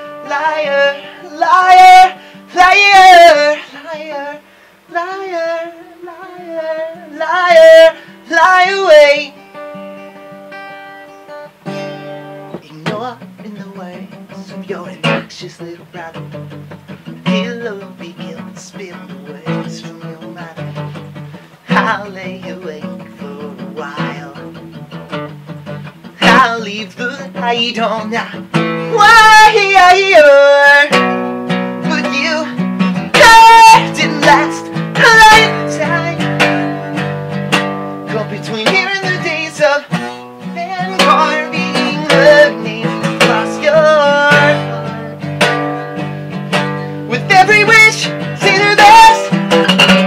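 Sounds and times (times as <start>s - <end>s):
high voice singing: 0.0s - 9.4s, 26.2s - 31.2s, 31.8s - 37.1s, 38.1s - 45.2s, 47.0s - 49.6s
acoustic guitar: 0.0s - 50.0s.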